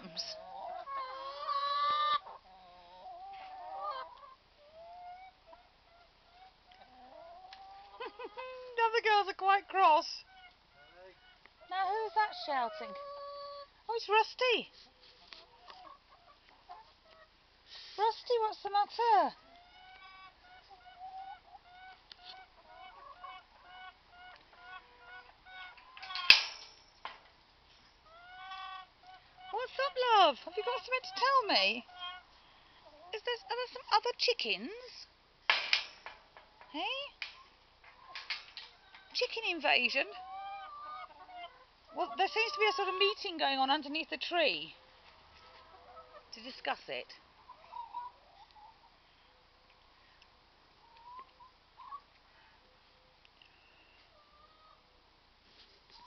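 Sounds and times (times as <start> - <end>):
hens grumbling: 0.0 - 8.8, 10.2 - 13.7, 40.1 - 43.2.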